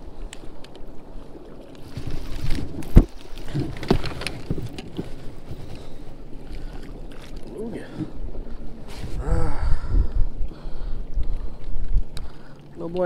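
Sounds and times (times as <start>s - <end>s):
water lapping against kayak hull: 0.0s - 13.0s
fishing gear knocking and clicking: 2.5s - 5.2s.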